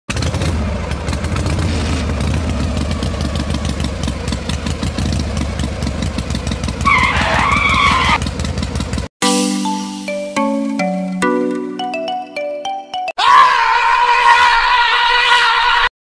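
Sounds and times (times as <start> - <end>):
small tractor engine chugging: 0.1 - 9.1.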